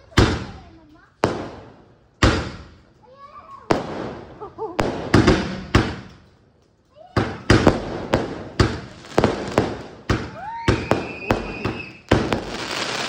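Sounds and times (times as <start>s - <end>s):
fireworks bangs: 0.0s - 2.9s, 3.5s - 6.3s, 7.1s - 13.0s
fireworks crackling: 0.0s - 13.0s.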